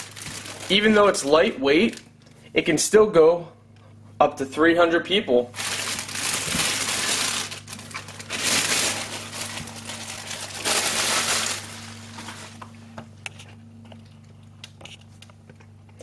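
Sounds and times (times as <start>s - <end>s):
plastic bag crinkling: 0.0s - 2.2s, 5.5s - 12.7s
steady low hum: 0.0s - 16.0s.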